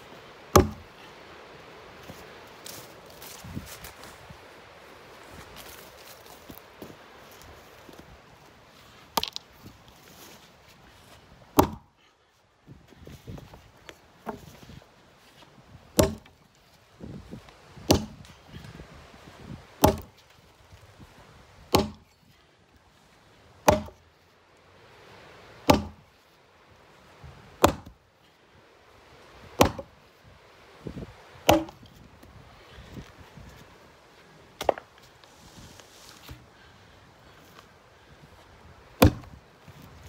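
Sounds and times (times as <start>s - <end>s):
axe chopping wooden beam: 0.5s - 0.9s, 9.2s - 9.4s, 11.5s - 11.9s, 16.0s - 16.4s, 17.8s - 18.3s, 19.8s - 20.2s, 21.7s - 22.2s, 23.6s - 24.0s, 25.6s - 26.0s, 27.6s - 28.0s, 29.6s - 29.9s, 31.4s - 31.8s, 34.6s - 34.9s, 39.0s - 39.4s.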